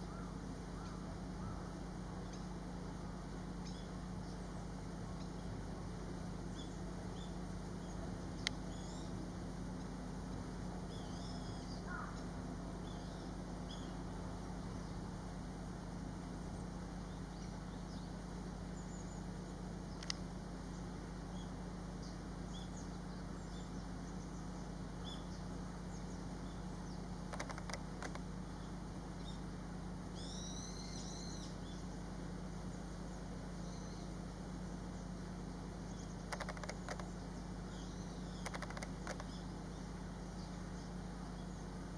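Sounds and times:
steady low hum: 0.0s - 41.9s
faint small-bird chirps: 3.6s - 5.5s, 6.5s - 14.0s, 16.5s - 29.5s, 30.1s - 32.0s, 32.7s - 41.8s
arched chirps: 27.3s - 28.2s, 36.3s - 37.1s, 38.3s - 39.4s
kingfisher rattling calls: 27.3s - 28.2s, 36.2s - 37.2s, 38.3s - 39.4s.

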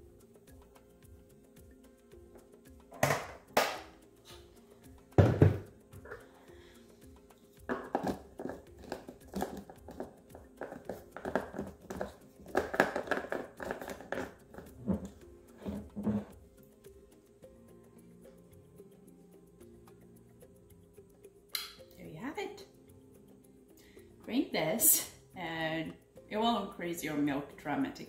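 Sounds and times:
quiet background music: 0.0s - 28.0s
blender jar knocking onto base: 3.0s - 3.8s, 5.2s - 6.2s, 7.7s - 10.1s, 10.7s - 14.3s
plastic lid clicks and crinkles: 7.7s - 15.1s.

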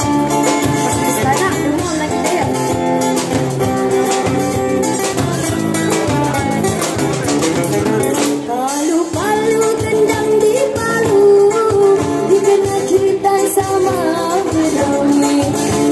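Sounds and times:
band playing upbeat dance tune: 0.0s - 15.9s
person singing: 7.8s - 15.9s.

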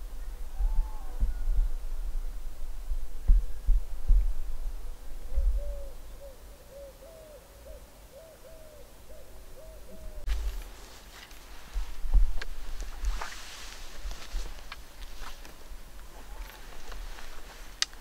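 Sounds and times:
low thumping rumble: 0.6s - 5.8s
bird hooting: 5.3s - 10.3s
brief rustle: 10.3s - 18.0s.

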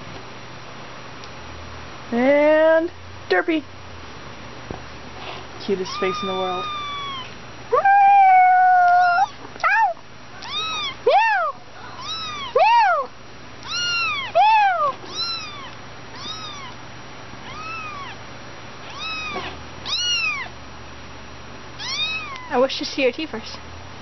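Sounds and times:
kitten mewing: 5.8s - 16.8s, 17.4s - 18.2s, 18.9s - 20.6s, 21.8s - 22.6s.

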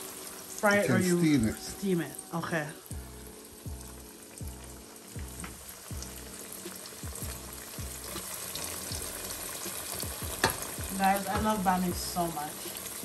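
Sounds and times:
flatbreads sizzling in hot oil: 0.0s - 13.0s
background music with bass beat: 2.9s - 12.4s.

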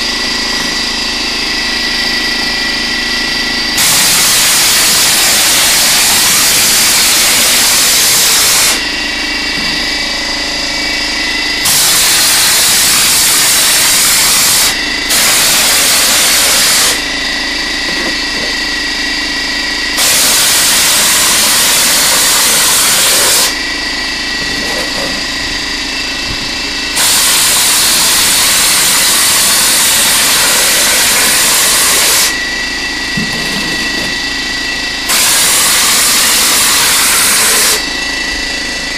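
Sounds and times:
air compressor running: 0.0s - 38.9s
hopper gun hissing blasts: 11.6s - 17.0s, 20.0s - 23.6s, 35.0s - 37.8s.

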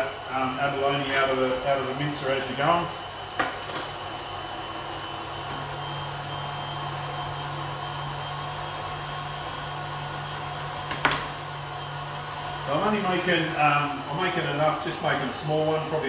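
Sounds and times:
stand mixer motor humming: 0.0s - 16.0s.

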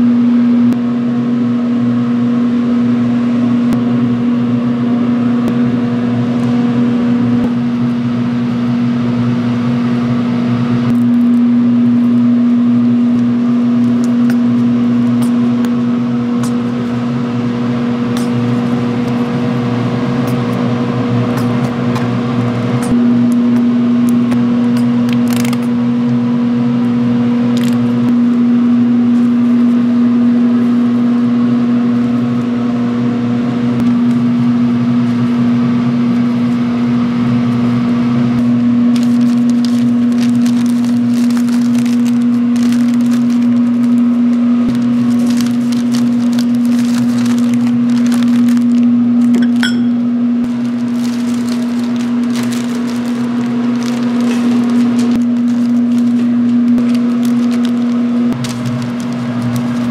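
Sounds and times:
steady machine hum: 0.0s - 59.9s
crackling and clicks: 38.9s - 49.4s, 50.4s - 59.9s.

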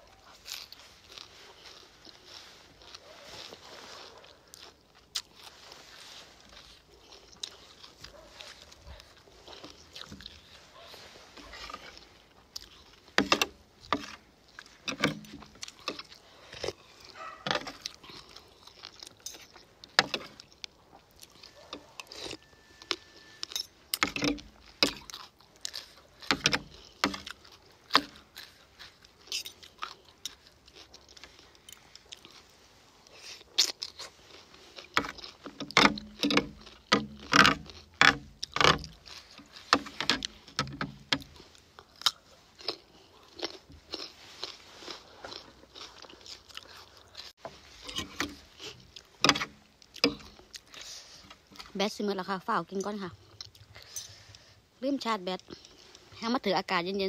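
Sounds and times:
crunchy chewing: 0.0s - 56.2s.

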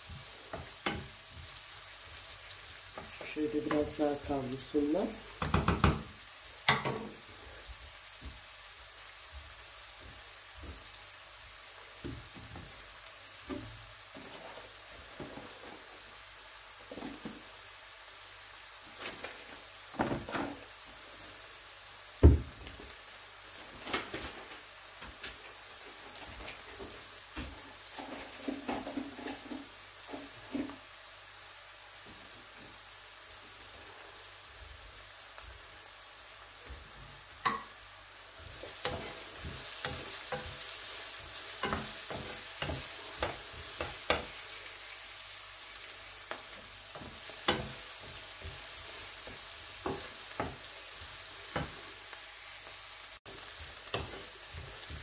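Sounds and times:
onions sizzling in hot oil: 0.0s - 55.0s
wooden spoon scraping a pan: 13.5s - 16.1s, 25.4s - 30.9s, 36.8s - 52.6s, 53.2s - 55.0s.

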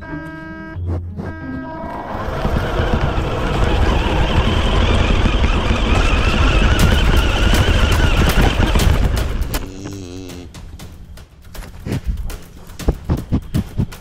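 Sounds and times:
wavering low tone: 0.8s - 3.1s
rc car motor whining: 1.6s - 9.6s
rumble and rattling jolts: 1.8s - 14.0s.

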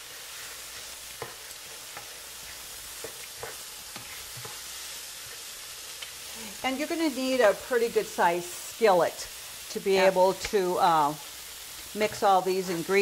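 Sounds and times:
utensil scraping a pan: 0.0s - 5.5s
meat sizzling in a skillet: 0.0s - 13.0s.

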